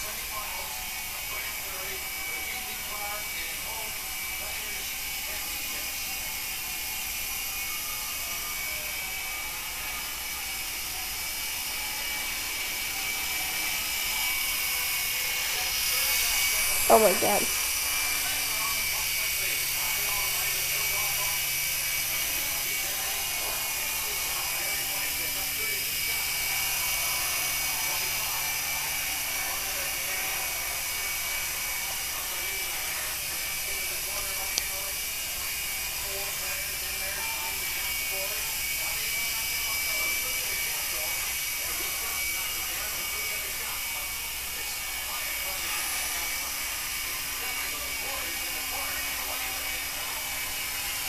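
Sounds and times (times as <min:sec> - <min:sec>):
toy helicopter rotors whirring: 0:00.0 - 0:51.0.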